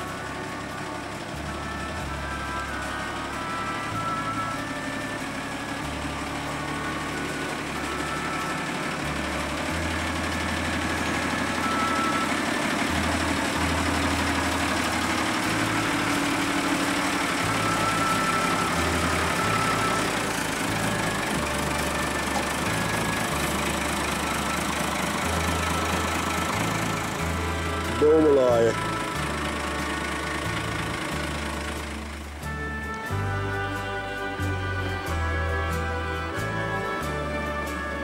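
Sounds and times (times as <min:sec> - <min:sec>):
truck engine idling: 0:00.0 - 0:38.0.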